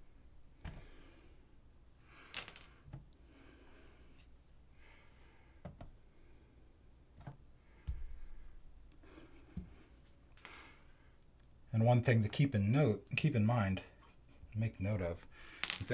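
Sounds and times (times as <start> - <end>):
tools clinking: 2.3 - 2.8.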